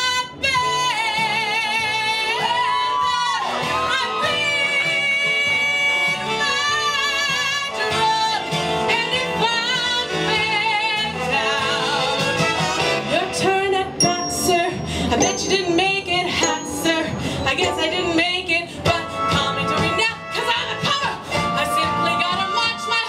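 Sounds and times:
instrumental accompaniment: 14.0 - 20.3
woman belting show tune: 14.0 - 21.2.

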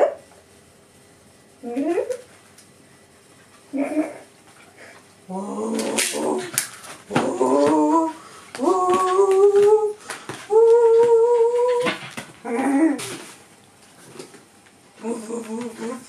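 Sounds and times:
dog whining: 3.7 - 4.3, 5.3 - 13.2.

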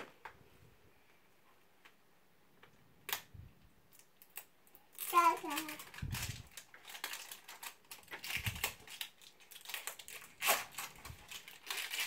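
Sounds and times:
plastic wrapping crinkling: 3.9 - 12.0.

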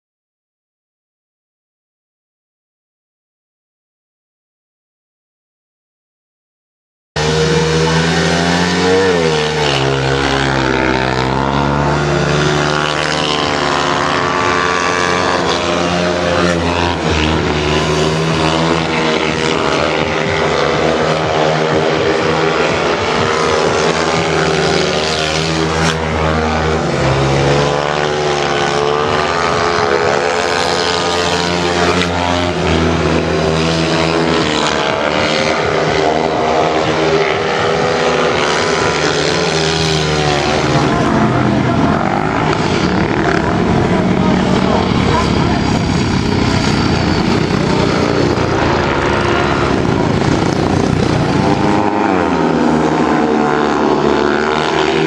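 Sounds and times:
motorcycle engines revving: 7.2 - 55.0.

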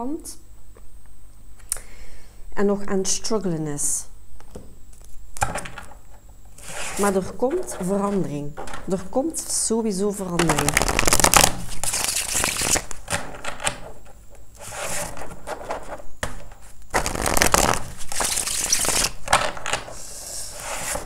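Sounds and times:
cards being shuffled: 10.4 - 20.0.

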